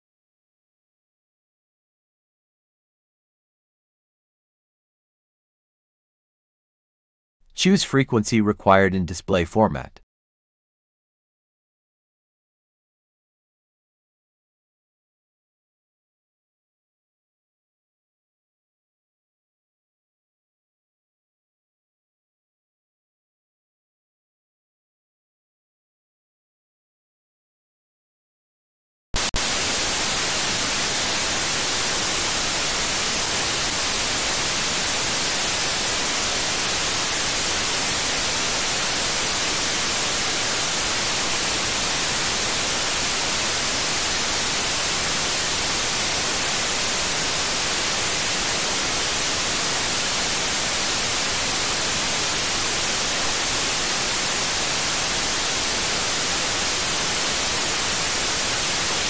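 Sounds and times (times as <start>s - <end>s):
radio static hiss: 29.2s - 59.0s.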